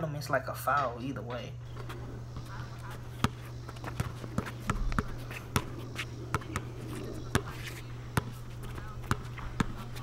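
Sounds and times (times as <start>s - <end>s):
steady low hum: 0.0s - 10.0s
basketball bouncing on hard court: 2.3s - 7.6s, 8.2s - 10.0s.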